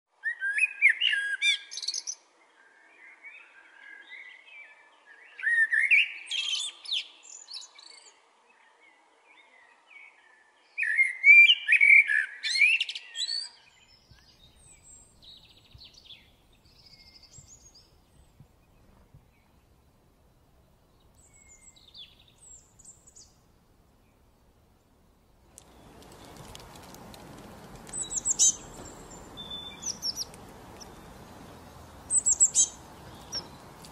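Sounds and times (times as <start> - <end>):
blackbird singing: 0.2 - 8.2, 9.3 - 19.6, 20.9 - 23.4, 27.6 - 33.9.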